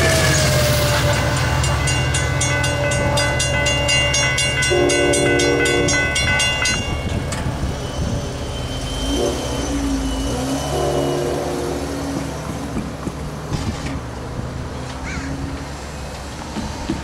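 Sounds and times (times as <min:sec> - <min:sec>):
train horn blast: 0:00.0 - 0:06.7, 0:07.9 - 0:12.4
electronic crossing bell ringing: 0:00.0 - 0:11.0
train rumbling: 0:00.0 - 0:17.0.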